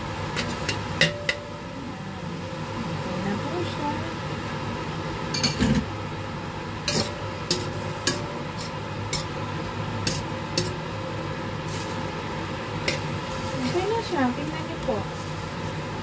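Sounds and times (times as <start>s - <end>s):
steady low hum: 0.0s - 16.0s
metal spatula scraping a wok: 6.8s - 9.4s, 10.0s - 10.8s.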